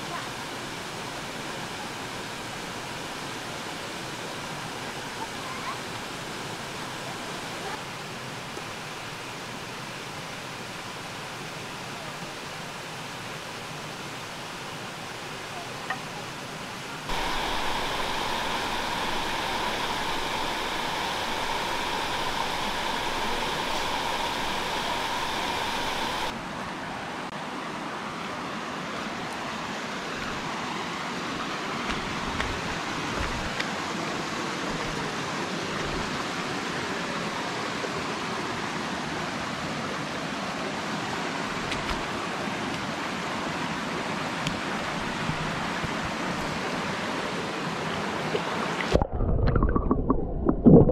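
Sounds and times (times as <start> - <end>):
stream flowing over rocks: 0.0 - 50.9
fan whirring: 17.0 - 26.4.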